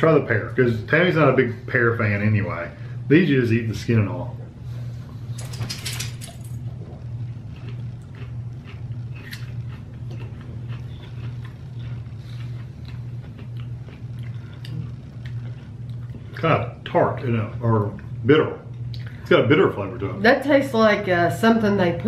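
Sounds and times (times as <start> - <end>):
low hum: 0.0 - 22.0
crunching of pear being chewed: 6.6 - 16.4.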